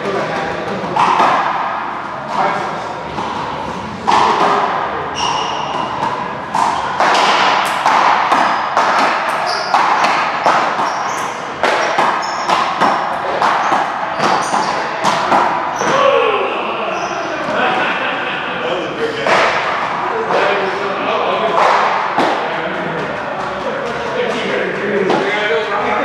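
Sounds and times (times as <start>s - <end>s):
ball hits and bounces: 0.3s - 2.4s, 3.1s - 16.2s, 21.4s - 24.1s
sneakers squeaking on court floor: 5.0s - 16.0s, 16.9s - 17.4s.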